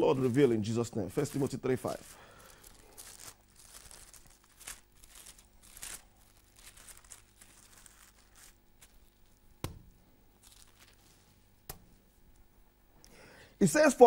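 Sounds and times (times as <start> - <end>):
pages rustling as turned: 0.0 - 9.5, 10.3 - 11.8.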